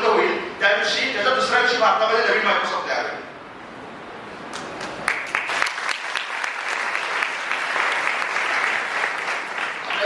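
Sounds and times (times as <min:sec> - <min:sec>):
audience applauding: 0:04.5 - 0:10.0.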